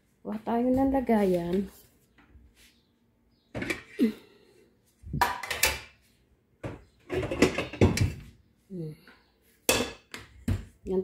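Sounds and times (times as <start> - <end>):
metal cooking pot clattering: 7.1 - 8.2.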